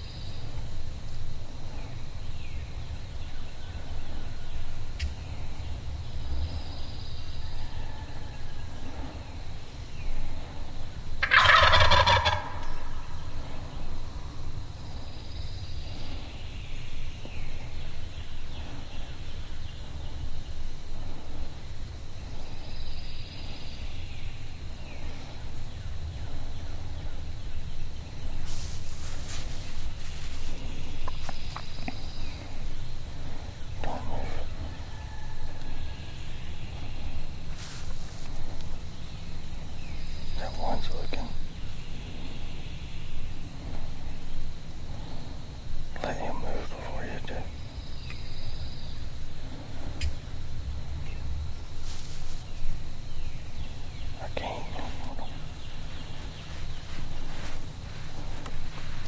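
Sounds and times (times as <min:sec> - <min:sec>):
turkey gobbling: 0:11.2 - 0:13.1, 0:49.9 - 0:50.2.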